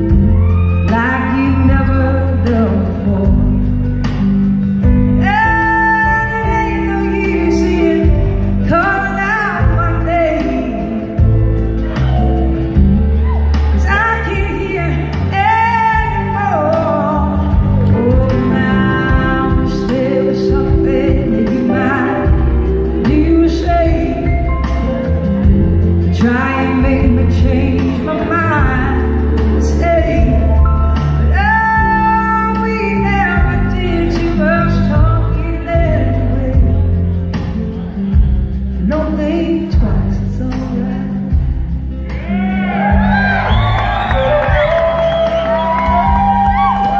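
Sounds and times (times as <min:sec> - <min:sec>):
woman singing: 0:00.0 - 0:04.2, 0:05.1 - 0:11.4, 0:13.8 - 0:37.2, 0:38.8 - 0:41.6
live blues-rock band: 0:00.0 - 0:46.9.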